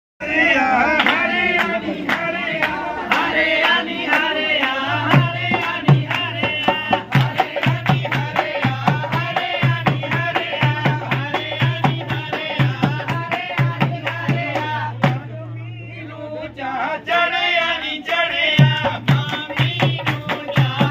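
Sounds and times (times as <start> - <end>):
sharp percussive strikes: 4.9 - 15.2
low drum beat: 5.0 - 15.3.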